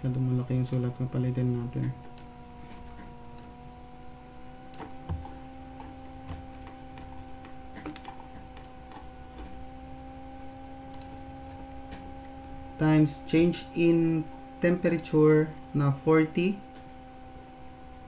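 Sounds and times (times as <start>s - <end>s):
steady hum: 0.0s - 18.0s
sharp clicks: 1.8s - 2.3s, 10.9s - 11.2s.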